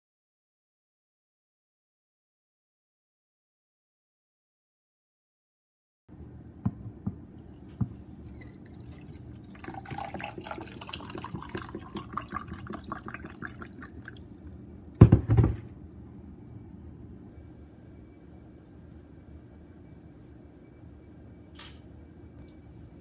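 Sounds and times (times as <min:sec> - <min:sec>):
water pouring into a glass: 0:08.2 - 0:15.0
loud thump: 0:15.0 - 0:15.6.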